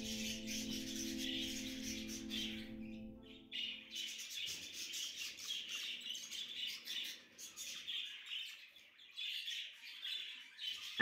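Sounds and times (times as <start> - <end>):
budgerigars chattering: 0.0 - 3.0.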